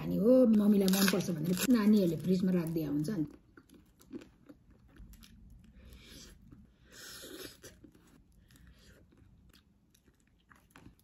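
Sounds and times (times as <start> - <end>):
person chewing ice cream cone: 3.4 - 11.0.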